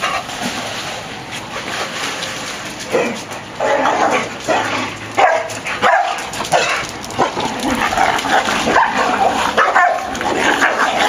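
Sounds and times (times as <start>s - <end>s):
dogs barking and yipping: 2.8s - 11.0s.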